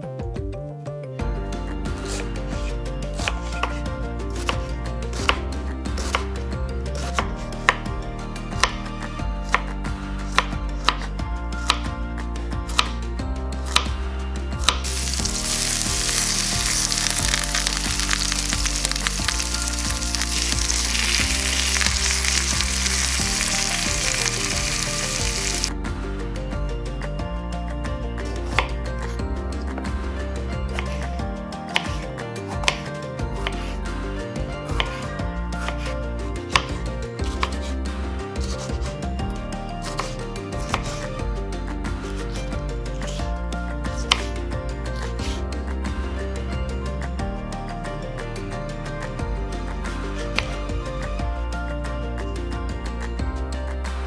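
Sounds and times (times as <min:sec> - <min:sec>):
background music: 0:00.0 - 0:54.0
knife chopping on wooden board: 0:08.6 - 0:08.9, 0:10.3 - 0:11.0, 0:14.6 - 0:25.6, 0:30.7 - 0:31.1, 0:31.7 - 0:33.8, 0:34.6 - 0:35.9, 0:36.5 - 0:37.7, 0:39.8 - 0:41.1
meat sizzling in frying pan: 0:14.8 - 0:25.7.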